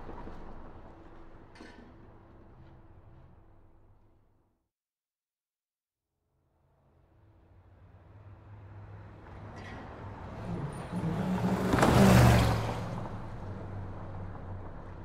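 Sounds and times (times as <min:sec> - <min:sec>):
low traffic hum: 0:07.2 - 0:15.0
truck driving past: 0:07.2 - 0:15.0.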